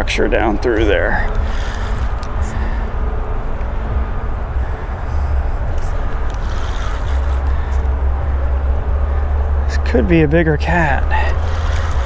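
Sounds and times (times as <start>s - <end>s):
steady low rumble: 0.0s - 12.0s
spinning reel being cranked: 1.3s - 2.3s, 6.3s - 7.9s, 11.1s - 12.0s.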